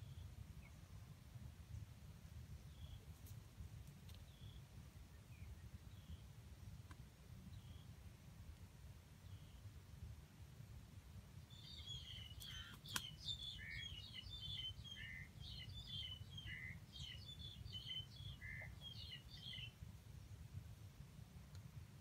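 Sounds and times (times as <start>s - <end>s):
bird chirping: 11.5s - 19.8s.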